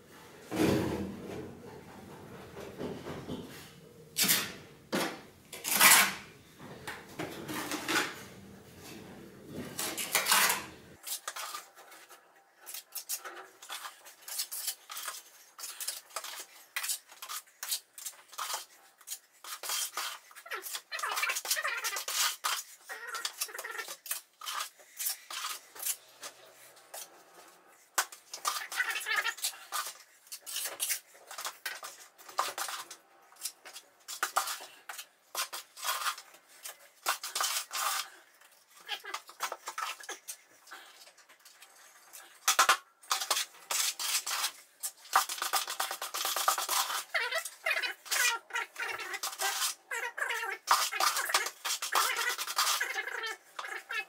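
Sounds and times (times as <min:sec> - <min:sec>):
trowel scraping bucket: 0:05.6 - 0:06.3, 0:28.1 - 0:54.0.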